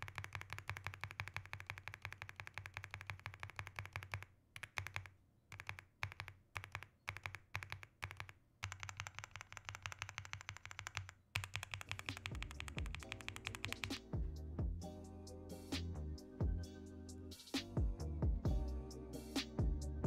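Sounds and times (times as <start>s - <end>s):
mechanical keyboard typing: 0.0s - 14.1s
music: 12.2s - 20.0s.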